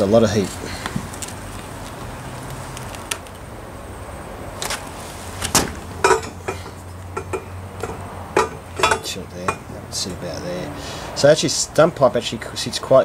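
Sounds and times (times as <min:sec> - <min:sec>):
handling knocks and clicks: 0:05.4 - 0:09.7.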